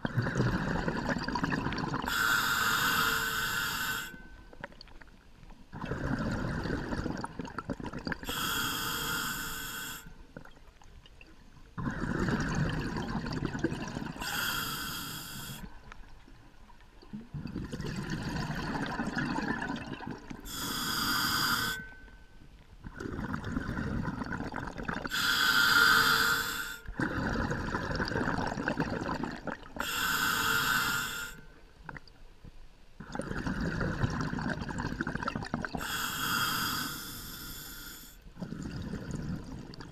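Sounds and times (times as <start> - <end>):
diver exhaling bubbles: 0.0 - 2.1, 5.7 - 8.3, 11.8 - 14.6, 17.1 - 21.1, 22.8 - 25.2, 27.0 - 29.8, 33.0 - 36.8, 38.4 - 39.9
regulator inhale hiss: 2.1 - 4.3, 8.3 - 10.2, 14.2 - 15.8, 20.4 - 22.1, 25.1 - 27.0, 29.8 - 31.6, 35.8 - 38.3.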